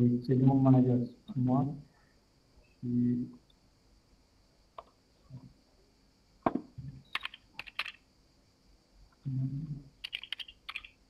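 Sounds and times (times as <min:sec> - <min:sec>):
typing on keyboard: 0:07.1 - 0:08.0, 0:10.0 - 0:11.0.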